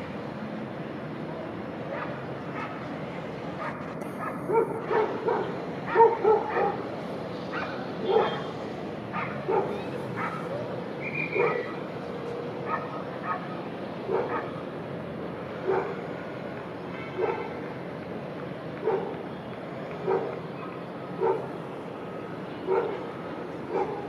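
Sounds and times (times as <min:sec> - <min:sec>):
dog barking: 0:03.6 - 0:06.8, 0:07.5 - 0:08.5, 0:09.1 - 0:10.7, 0:11.3 - 0:11.8, 0:12.7 - 0:13.5, 0:14.1 - 0:14.6, 0:15.6 - 0:16.0, 0:17.2 - 0:17.5, 0:18.8 - 0:19.2, 0:20.0 - 0:21.5, 0:22.7 - 0:23.0, 0:23.7 - 0:24.0.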